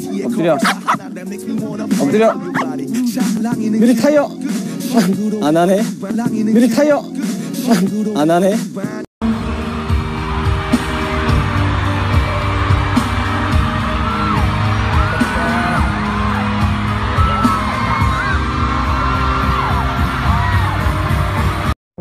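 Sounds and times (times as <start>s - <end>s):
loud live pop music: 0.0s - 21.8s
audience screaming and whooping: 9.4s - 21.7s.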